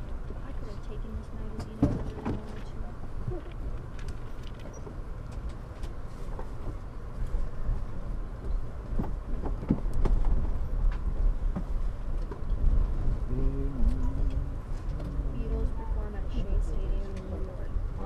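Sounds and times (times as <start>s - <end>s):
train rumbling on track: 0.0s - 18.0s
clicks and knocks of wheels: 3.3s - 7.5s, 8.4s - 12.9s.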